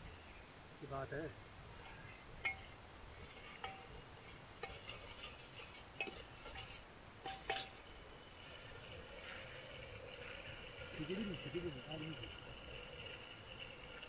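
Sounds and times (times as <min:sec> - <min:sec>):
ladle clinking on metal pot: 0:02.4 - 0:02.8, 0:03.4 - 0:07.8.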